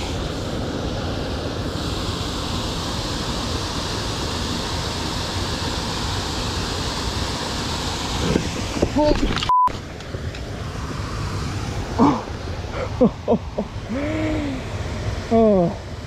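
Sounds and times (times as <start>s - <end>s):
censor bleep: 9.5s - 9.7s.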